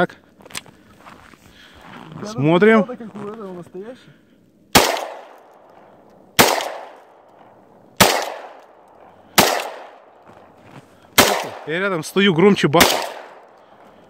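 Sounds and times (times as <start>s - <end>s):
shotgun shots echoing: 4.7s - 10.4s, 11.1s - 14.0s.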